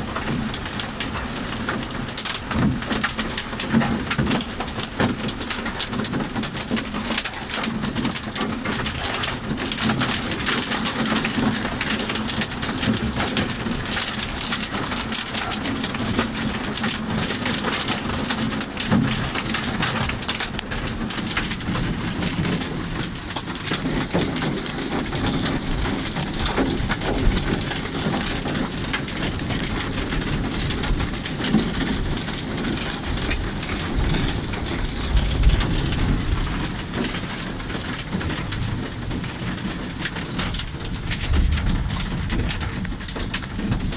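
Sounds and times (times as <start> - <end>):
heavy rain on car roof: 0.0 - 43.9
thunder rumbling: 15.8 - 39.7, 40.4 - 43.9.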